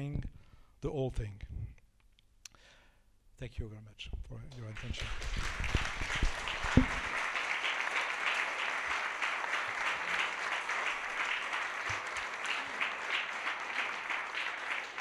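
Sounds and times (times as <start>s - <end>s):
audience applauding: 4.6s - 15.0s
low knocks: 6.7s - 7.1s.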